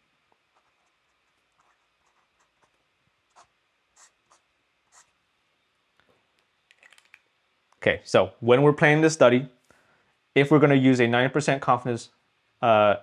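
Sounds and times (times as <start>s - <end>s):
pen scratching on paper: 0.5s - 5.2s.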